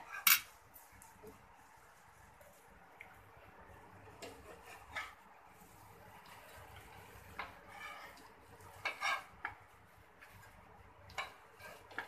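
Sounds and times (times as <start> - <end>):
metal spatula scraping frying pan: 4.2 - 5.2, 6.2 - 9.6, 10.2 - 12.0.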